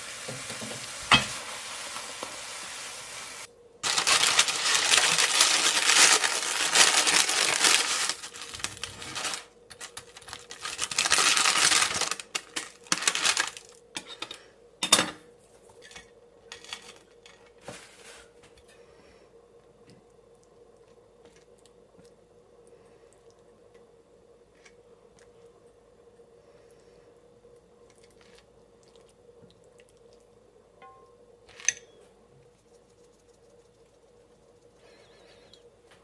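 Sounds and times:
egg sizzling in a pan: 0:00.0 - 0:09.5.

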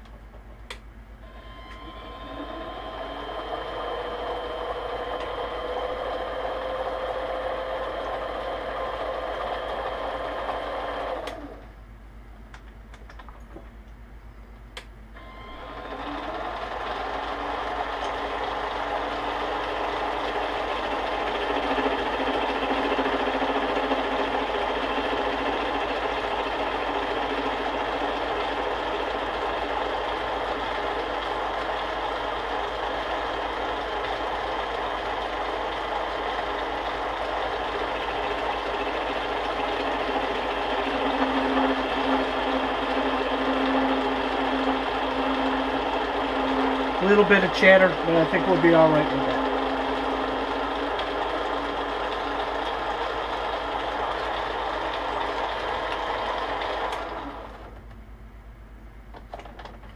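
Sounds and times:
metal lathe running: 0:01.2 - 0:11.6, 0:15.2 - 0:57.8
lathe tool chatter: 0:15.6 - 0:57.6.

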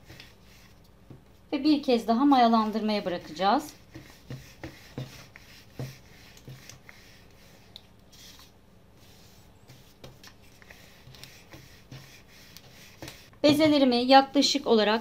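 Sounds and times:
rolling pin rubbing on dough: 0:02.4 - 0:13.8.

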